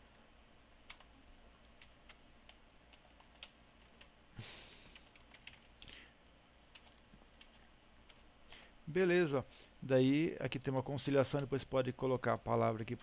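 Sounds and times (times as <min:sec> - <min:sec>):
keyboard keystrokes: 0:00.9 - 0:01.1, 0:04.9 - 0:05.7, 0:06.7 - 0:08.2.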